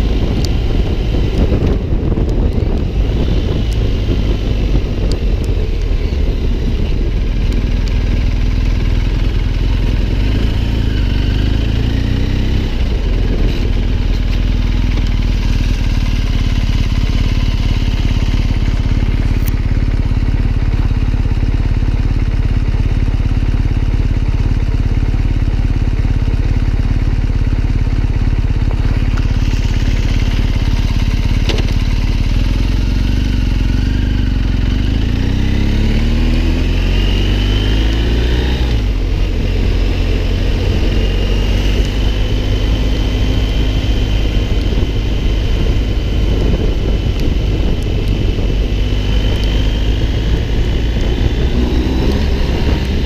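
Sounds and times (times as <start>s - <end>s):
motorcycle engine running: 0.0s - 53.0s.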